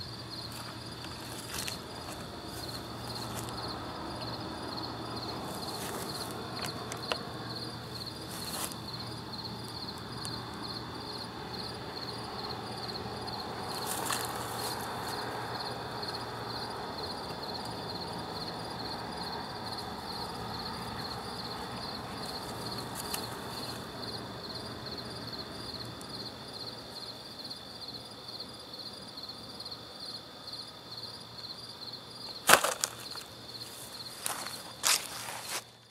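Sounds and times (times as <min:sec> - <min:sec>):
insects chirping: 0:00.0 - 0:35.9
rustles from handling: 0:32.5 - 0:35.8.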